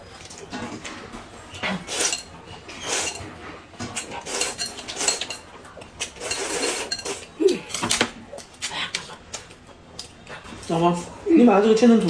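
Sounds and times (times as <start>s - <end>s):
slurping noodles: 1.6s - 7.7s.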